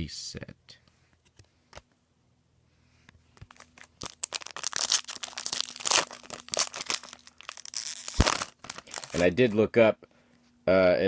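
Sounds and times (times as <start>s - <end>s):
wrapper crinkling and rustling: 3.4s - 9.6s.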